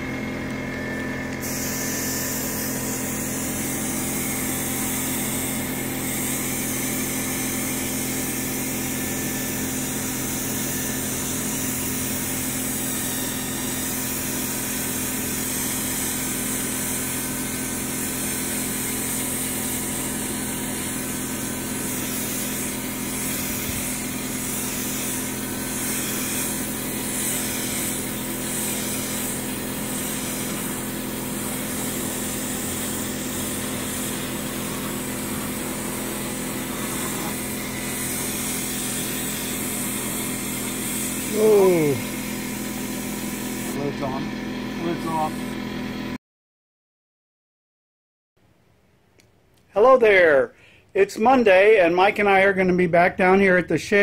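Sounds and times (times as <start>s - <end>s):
low mechanical hum: 0.0s - 46.0s
spray gun hissing: 1.4s - 43.9s.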